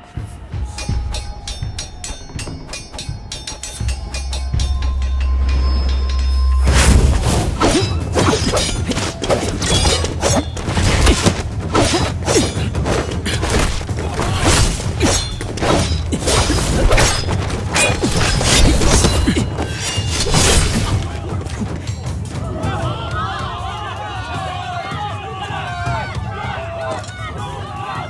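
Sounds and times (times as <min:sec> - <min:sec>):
music: 0:00.0 - 0:28.0
metal blade clashes: 0:00.6 - 0:21.1
fight strikes and hits: 0:06.8 - 0:21.2.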